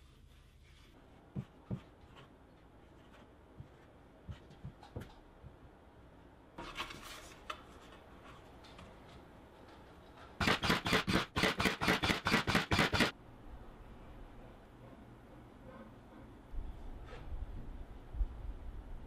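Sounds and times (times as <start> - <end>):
nail gun firing: 10.4 - 13.1.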